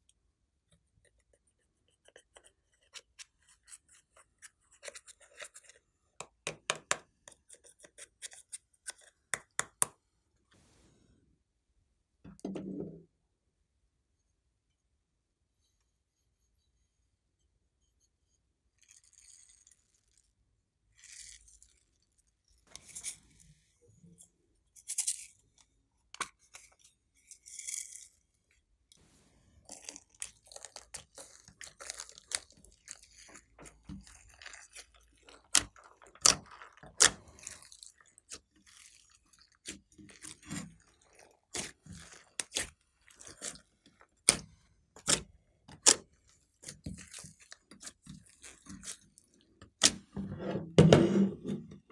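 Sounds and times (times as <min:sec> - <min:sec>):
hands squishing slime: 0:29.0 - 0:50.1
crunchy crackles and wet clicks: 0:29.7 - 0:50.0.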